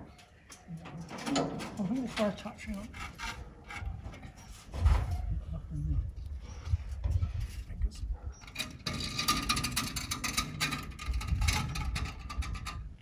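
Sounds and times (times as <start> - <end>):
rapid gritty scraping: 1.7 - 5.4, 6.6 - 13.0
chimney pots grating on brick: 2.0 - 4.7, 8.4 - 12.6.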